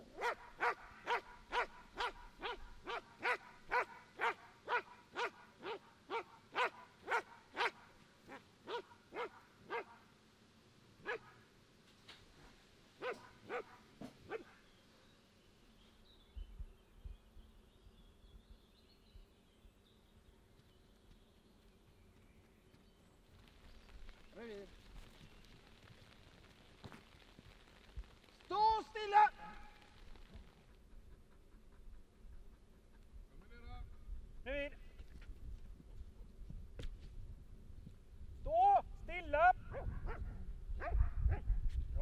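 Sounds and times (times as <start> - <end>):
dog barking: 0.2 - 10.0, 11.0 - 11.4, 13.0 - 14.6, 39.7 - 41.5.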